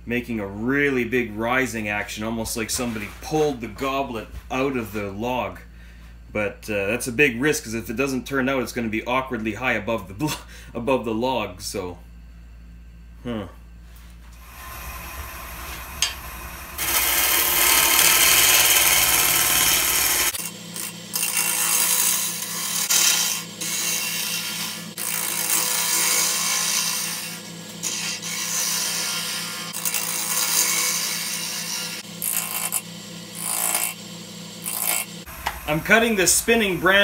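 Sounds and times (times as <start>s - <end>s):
lathe humming: 14.4s - 37.0s
gouge scraping wood: 16.8s - 20.4s.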